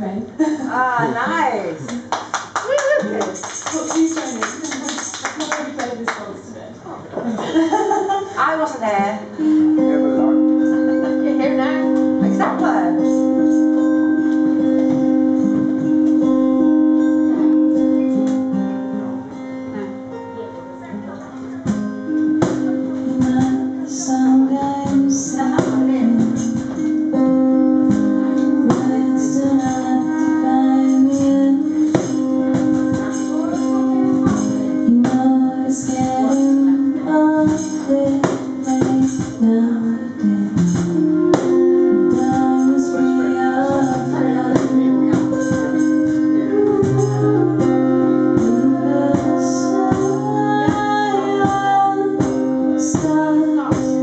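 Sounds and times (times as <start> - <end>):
woman singing: 0.7 - 1.8, 10.5 - 17.8, 22.2 - 54.0
acoustic guitar strumming: 0.8 - 2.1, 8.4 - 54.0.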